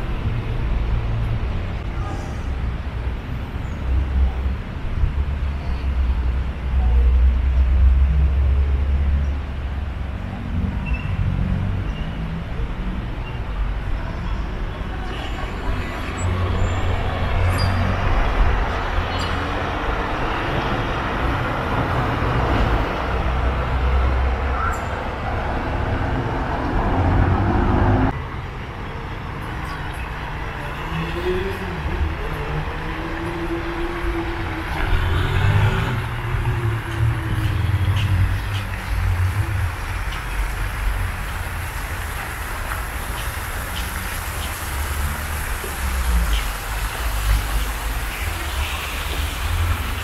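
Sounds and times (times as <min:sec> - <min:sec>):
motor traffic passing: 0:14.8 - 0:50.0.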